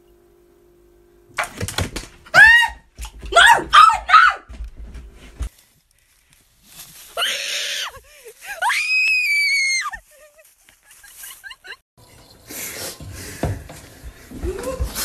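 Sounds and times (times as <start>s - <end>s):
person screaming: 2.3s - 4.5s, 7.2s - 10.0s.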